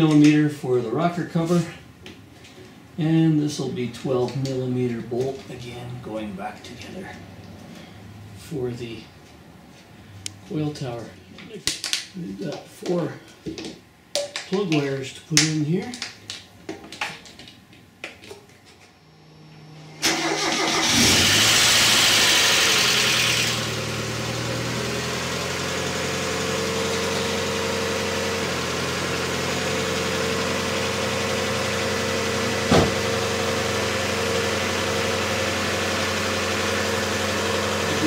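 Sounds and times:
car engine starting and idling: 19.0s - 38.0s.

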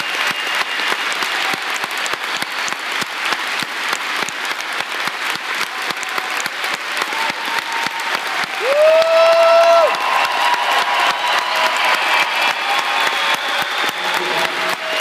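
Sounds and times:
large crowd applauding: 0.0s - 15.0s.

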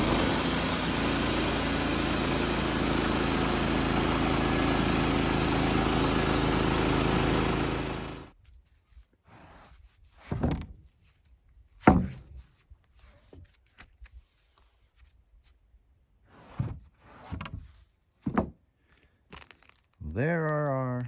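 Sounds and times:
wooden boards thumping: 11.8s - 12.4s.

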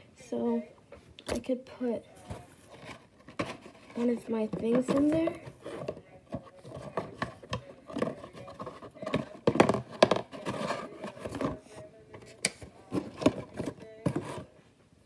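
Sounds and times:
cardboard box knocks and clacks: 2.8s - 11.6s.

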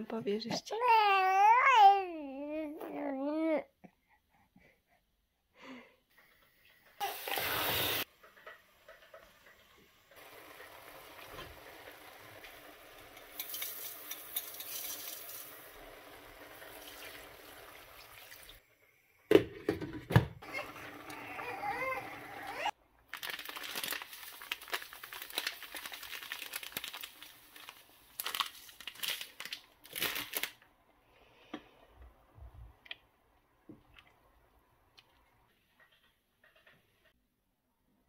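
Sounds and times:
vegetables sizzling in a pot: 7.0s - 18.6s.

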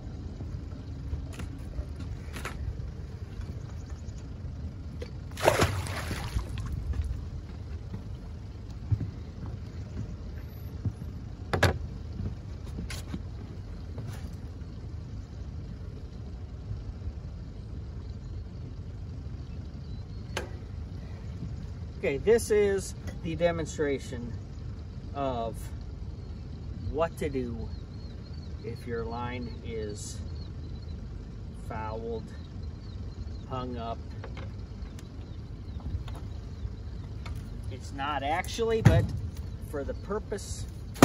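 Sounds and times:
low steady rumble: 0.0s - 41.0s
fish splashing into water: 5.3s - 6.8s.

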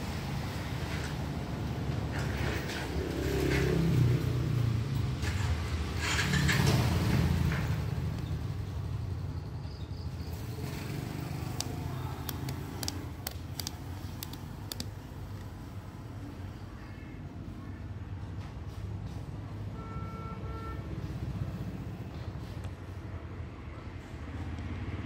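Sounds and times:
low rumble of passing traffic: 0.0s - 25.0s
plastic parts clicking: 11.5s - 15.5s.

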